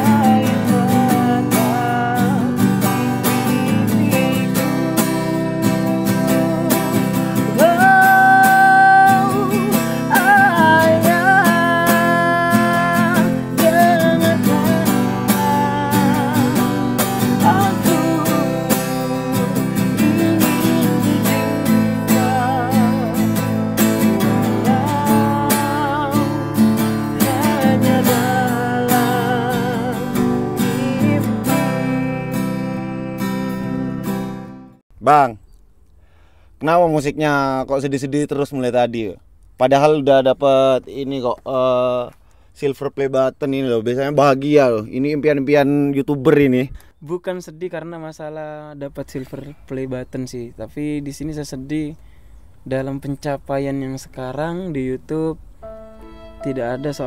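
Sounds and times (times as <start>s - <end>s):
person singing: 0.0s - 34.0s, 55.6s - 57.0s
acoustic guitar strumming: 0.0s - 34.8s, 55.6s - 57.0s.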